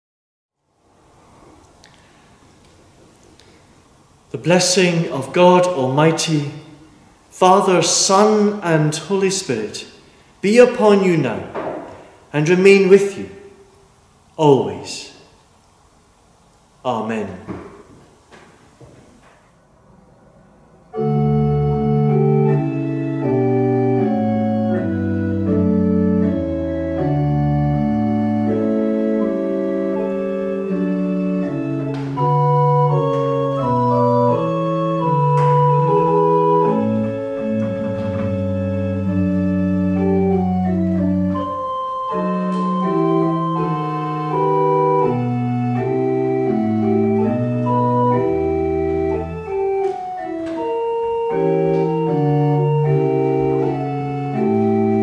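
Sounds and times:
pipe organ playing chords: 4.3 - 13.5, 20.9 - 55.0
light knocks: 11.5 - 12.1.

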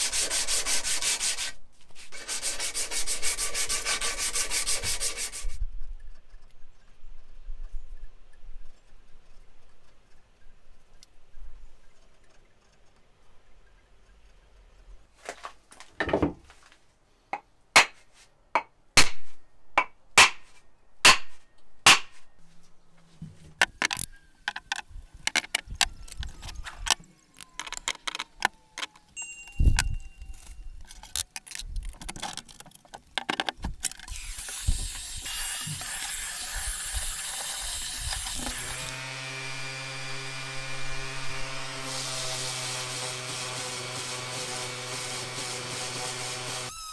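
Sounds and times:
orbital sander motor humming: 34.1 - 46.9.

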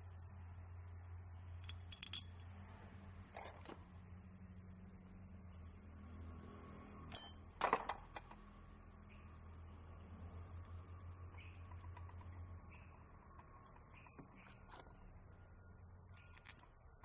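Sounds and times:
insect chirring: 0.0 - 7.1, 8.4 - 17.0
metal parts clinking: 1.6 - 2.6, 7.1 - 8.4, 16.1 - 17.0.

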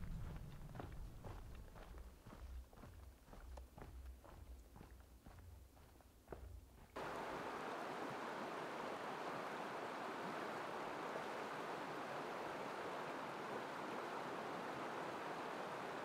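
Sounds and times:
river rushing over rocks: 7.0 - 16.0.

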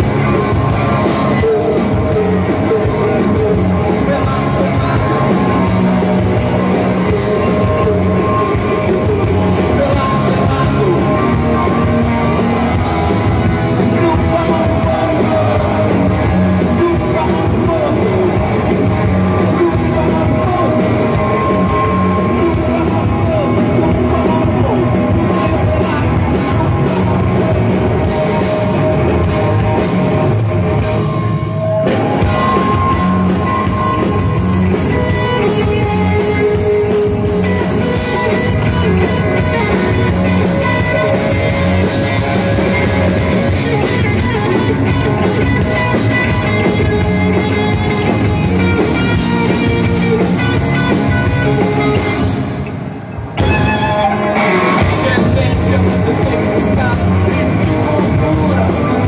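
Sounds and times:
person singing: 0.0 - 29.9, 53.4 - 59.0
bass guitar: 0.0 - 59.0
distorted electric guitars: 0.0 - 59.0
drum kit: 0.0 - 59.0.

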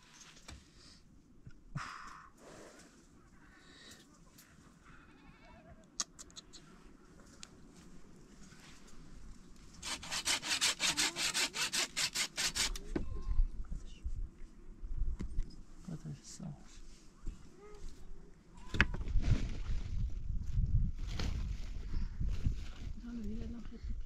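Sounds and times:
hand saw cutting wood: 9.8 - 12.8.

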